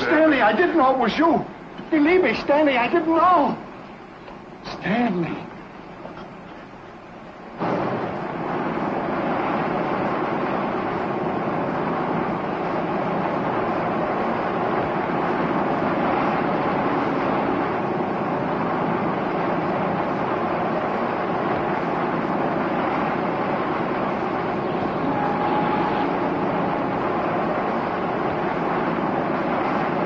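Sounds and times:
sea rushing: 0:07.6 - 0:30.0
wind rushing: 0:07.6 - 0:30.0.

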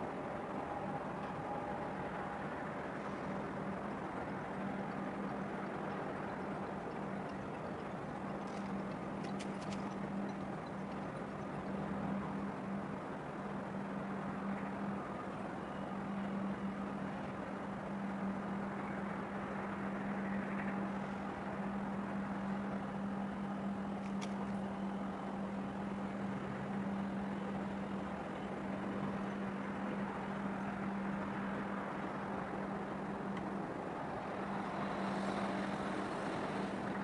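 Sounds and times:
boat engine hum: 0:00.0 - 0:37.0.

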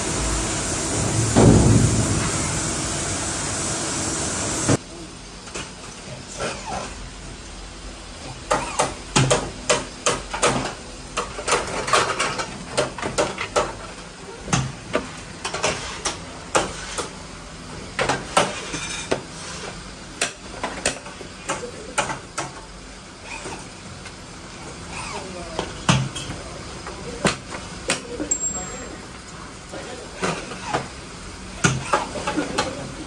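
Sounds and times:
metal knocks and clanks: 0:01.1 - 0:02.9.

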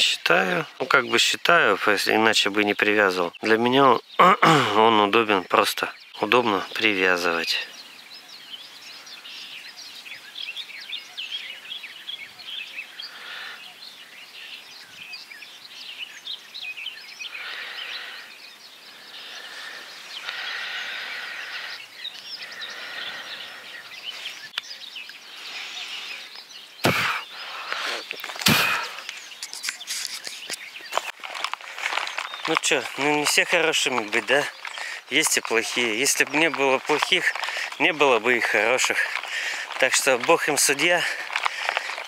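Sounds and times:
outdoor background hiss: 0:00.0 - 0:31.2
small birds chirping: 0:00.0 - 0:42.0.

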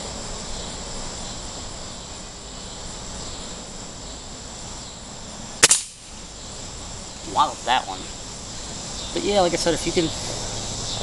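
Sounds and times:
high insect drone: 0:00.0 - 0:11.0
air rifle shot: 0:05.6 - 0:06.0.

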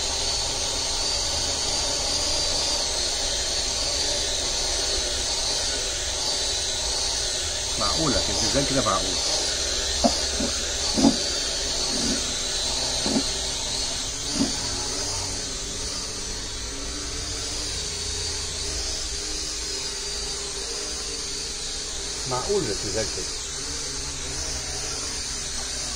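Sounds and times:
quadcopter motors whining: 0:00.0 - 0:25.9
short low bumps: 0:12.9 - 0:13.4.

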